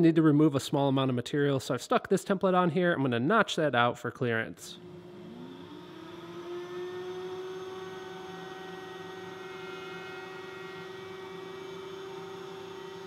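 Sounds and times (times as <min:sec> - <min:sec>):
router high-pitched hum: 0:04.8 - 0:13.0.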